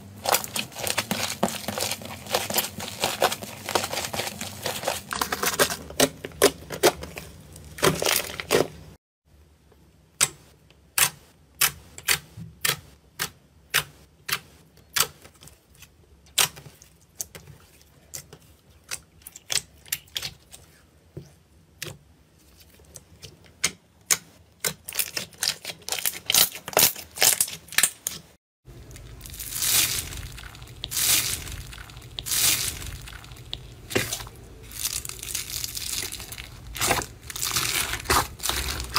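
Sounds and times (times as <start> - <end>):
slime crackling crunch: 0.1 - 9.0, 24.7 - 38.9
slime popping: 28.9 - 38.9.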